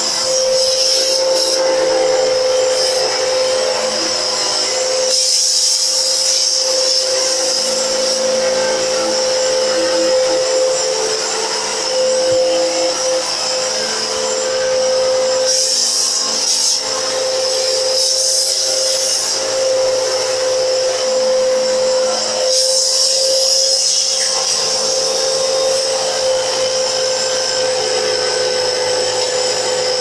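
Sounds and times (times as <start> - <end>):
vacuum cleaner running: 0.0 - 30.0.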